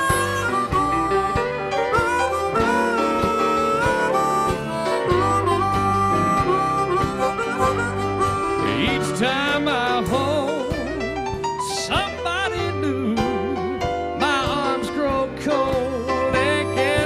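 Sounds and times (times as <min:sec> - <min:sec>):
harmonica playing: 0:00.0 - 0:11.8, 0:15.5 - 0:17.0
steady drum beat: 0:00.0 - 0:17.0
western swing band: 0:00.0 - 0:17.0.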